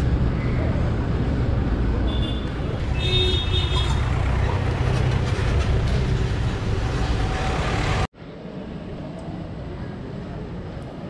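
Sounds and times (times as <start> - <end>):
busy street traffic rumble: 0.0 - 11.0
quiet street noise: 0.0 - 11.0.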